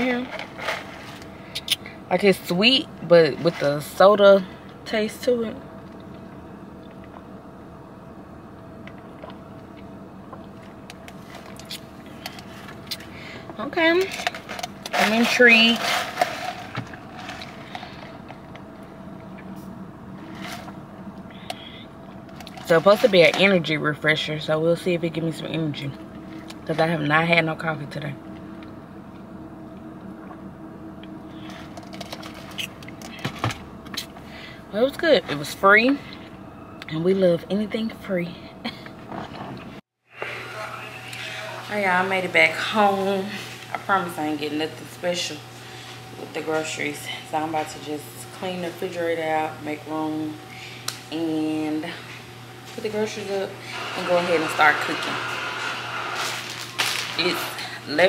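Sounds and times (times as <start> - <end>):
slurping through a straw: 53.7 - 57.6.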